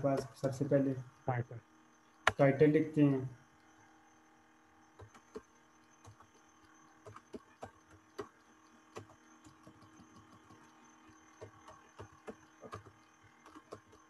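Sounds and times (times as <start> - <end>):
keyboard typing clicks: 11.4 - 14.0.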